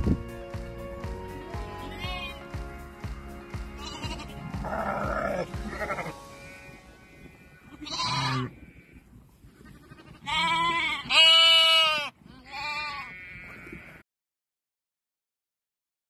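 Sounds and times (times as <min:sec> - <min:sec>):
lambs bleating: 0:03.8 - 0:14.0.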